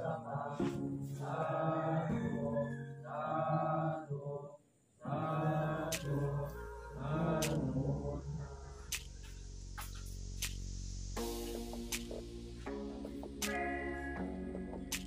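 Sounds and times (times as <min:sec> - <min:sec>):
men chanting: 0:00.0 - 0:08.9.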